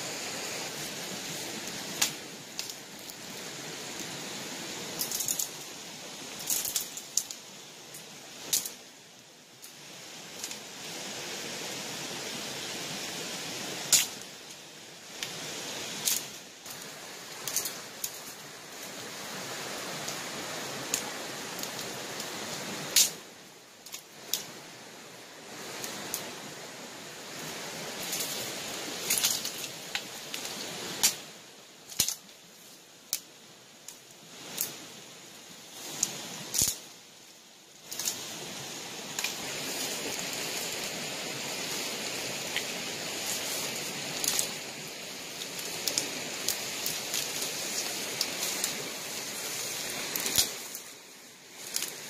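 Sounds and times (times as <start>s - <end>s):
rustling through dry leaves: 0.0s - 8.9s, 9.6s - 24.6s, 25.5s - 52.0s
twigs snapping: 31.9s - 32.3s, 35.9s - 36.8s, 37.9s - 38.3s, 43.3s - 44.6s, 45.4s - 48.8s, 50.1s - 50.9s, 51.6s - 52.0s.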